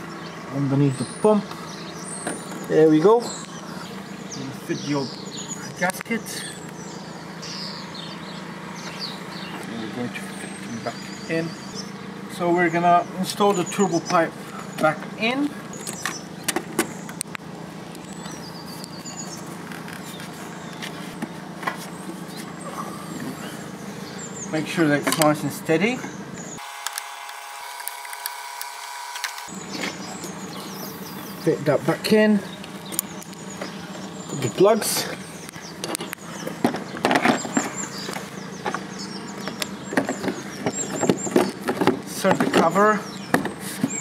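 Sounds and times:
bird trilling: 0.0 - 17.2, 28.4 - 44.0
outdoor background noise: 0.0 - 44.0
plastic engine cover seating: 18.0 - 22.6, 35.0 - 44.0
plug connectors clicking: 26.8 - 29.5.

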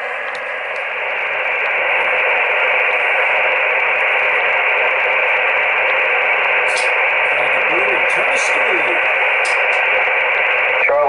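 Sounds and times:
radio static hiss: 0.0 - 11.0.

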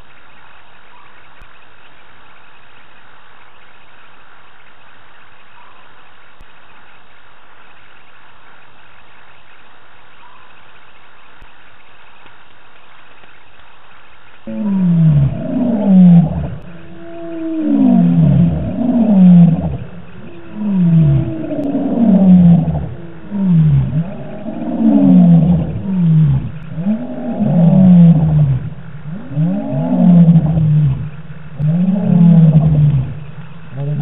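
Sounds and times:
lion roaring: 14.5 - 34.0.

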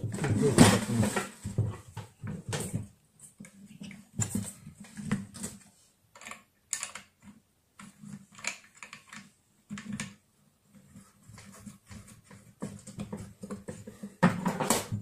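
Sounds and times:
metal parts clicking and tapping: 6.1 - 10.2.

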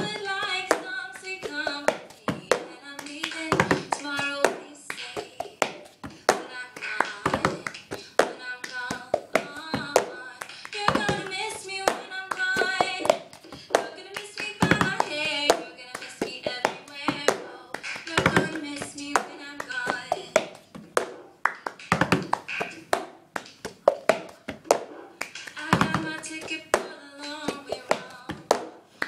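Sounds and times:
girl singing: 0.0 - 20.7, 25.5 - 28.8
hands drumming on a pot: 10.7 - 28.8.

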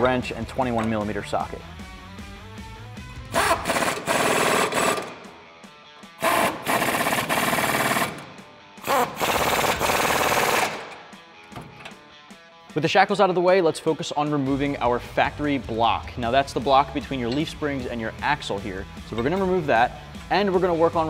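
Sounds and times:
pneumatic impact wrench hammering: 3.3 - 5.4, 6.1 - 12.0.

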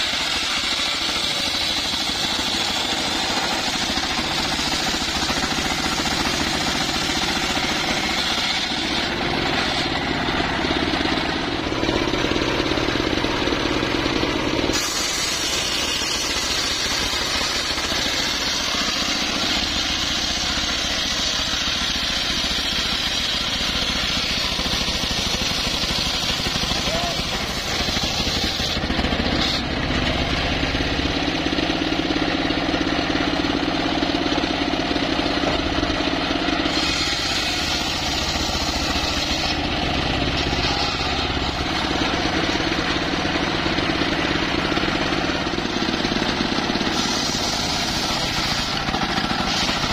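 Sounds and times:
saw blade ripping a log: 0.0 - 10.0, 14.7 - 29.7, 36.7 - 39.7, 40.3 - 41.8, 46.8 - 49.9
sawmill engine running: 0.0 - 49.9.

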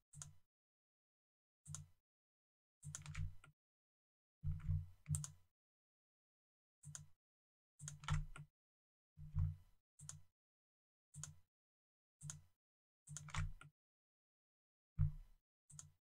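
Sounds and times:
mouse and keyboard clicks: 2.8 - 3.5, 5.1 - 5.4, 7.8 - 8.4, 13.1 - 13.7.

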